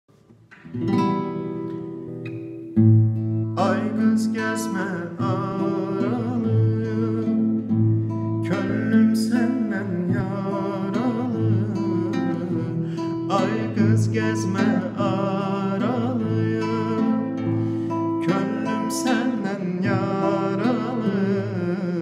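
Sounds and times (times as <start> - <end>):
classical guitar playing: 0.1 - 22.0
man singing with vibrato: 3.4 - 22.0.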